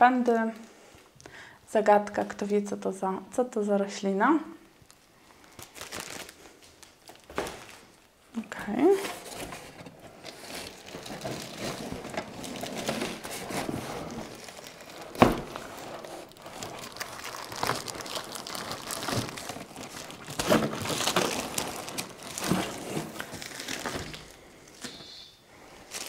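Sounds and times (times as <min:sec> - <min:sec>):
plastic film and cardboard rustling: 0:04.8 - 0:26.0.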